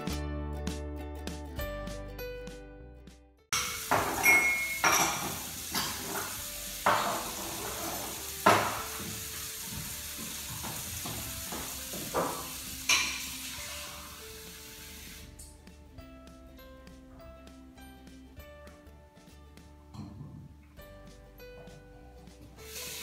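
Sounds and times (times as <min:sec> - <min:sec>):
dishes and pots clattering: 0:03.6 - 0:13.9, 0:19.9 - 0:20.6.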